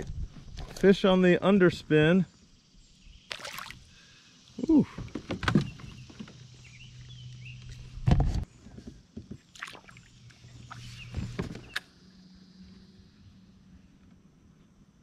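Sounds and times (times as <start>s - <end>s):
knocks and thumps on kayak: 4.9s - 6.4s.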